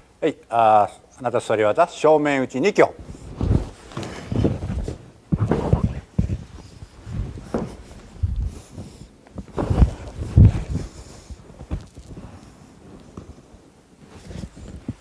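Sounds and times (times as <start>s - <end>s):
cloth rustling: 3.0s - 15.0s
dull thumps on a mat: 3.4s - 6.5s, 7.4s - 7.8s.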